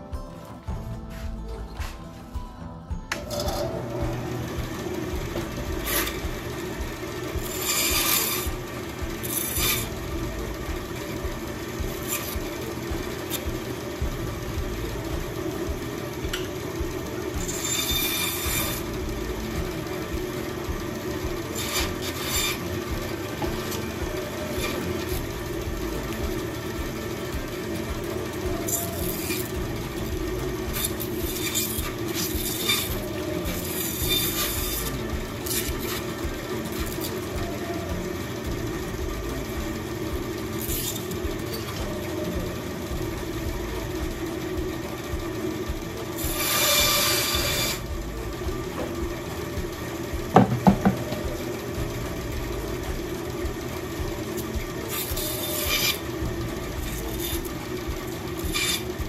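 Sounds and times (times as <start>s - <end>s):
bandsaw running: 0.0s - 59.0s
blade rasping through twigs: 5.8s - 10.2s, 11.7s - 13.7s, 17.3s - 19.6s, 21.2s - 37.9s, 40.6s - 42.5s, 54.4s - 59.0s
wood knocks: 50.4s - 51.3s.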